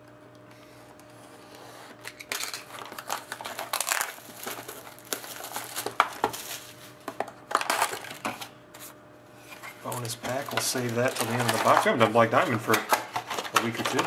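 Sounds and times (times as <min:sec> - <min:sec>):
plastic shrink-wrap crinkling: 0:02.1 - 0:08.3, 0:09.8 - 0:14.0.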